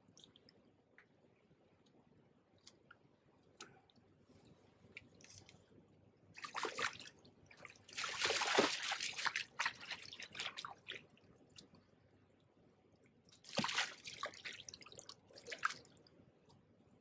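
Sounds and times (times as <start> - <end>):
fish splashing and thrashing: 7.8 - 11.0, 13.5 - 15.9.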